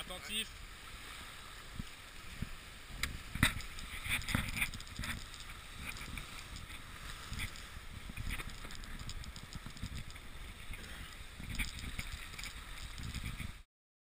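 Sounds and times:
water rushing along boat hull: 0.0 - 13.7
wind buffeting microphone: 1.5 - 13.6.

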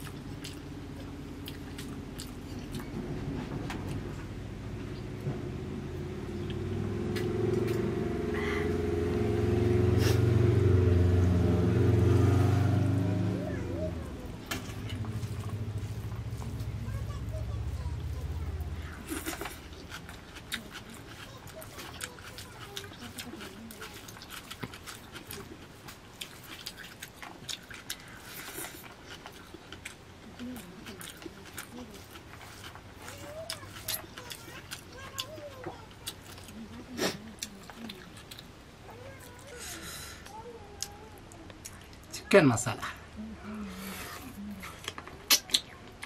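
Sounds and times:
chewing and mouth smacks: 0.0 - 3.0, 14.5 - 39.6, 44.1 - 46.0
vehicle engine humming: 0.0 - 27.4.

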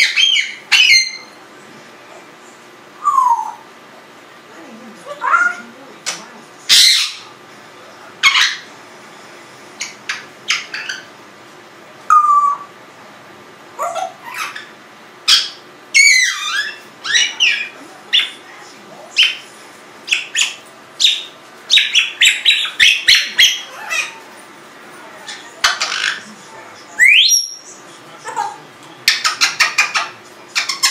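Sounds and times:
parrot whistling and squawking: 0.0 - 1.4, 3.0 - 3.6, 6.7 - 7.3, 8.2 - 8.7, 9.8 - 11.1, 12.1 - 12.7, 13.8 - 18.4, 19.2 - 24.2, 27.0 - 27.7, 29.1 - 30.9.

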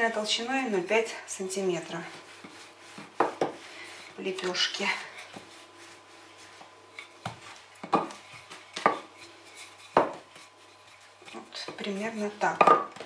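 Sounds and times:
rolling pin rubbing dough: 0.0 - 13.0.

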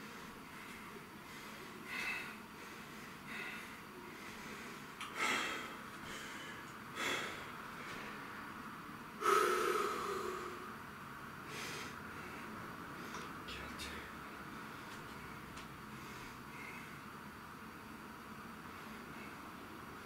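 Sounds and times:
man breathing hard: 0.0 - 8.3, 9.2 - 10.8, 11.4 - 13.4, 15.9 - 17.1.

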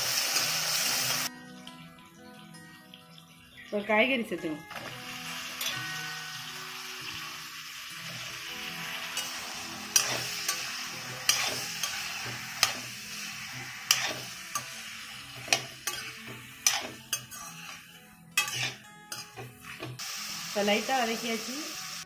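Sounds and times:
oil sizzling: 0.0 - 22.0
metal spatula scraping a pan: 8.1 - 20.0.

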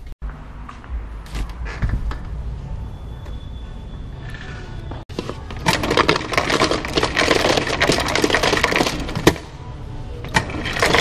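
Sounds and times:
ice cubes clattering into cup: 5.3 - 9.4, 10.4 - 11.0.

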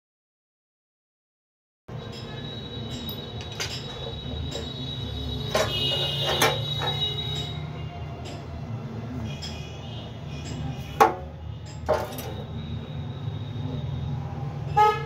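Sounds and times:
high scraping squeal: 2.3 - 7.9.

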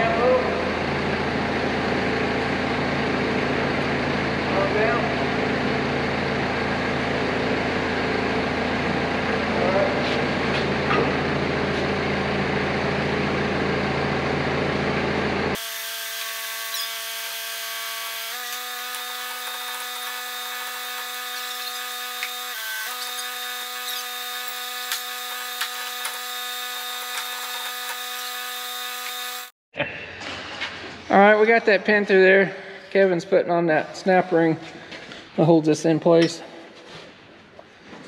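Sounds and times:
forklift engine humming: 5.2 - 15.6
machine whine: 15.0 - 29.6.

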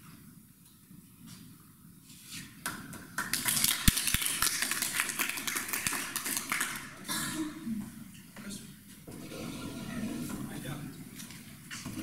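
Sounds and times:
small audience clapping: 2.6 - 7.1.

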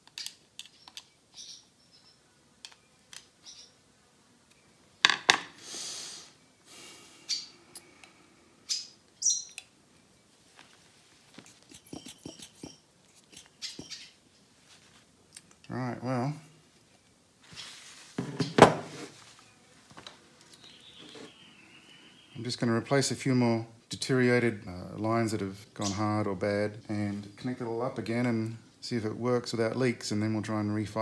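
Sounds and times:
brief hiss: 5.6 - 7.4.

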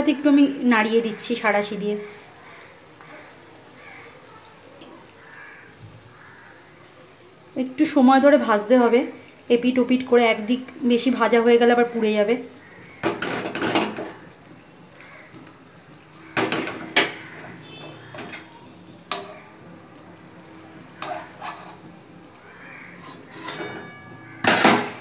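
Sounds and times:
faint sizzle of frying: 0.0 - 25.0
metal spoon clinking against pan: 19.1 - 19.5, 23.0 - 25.0.

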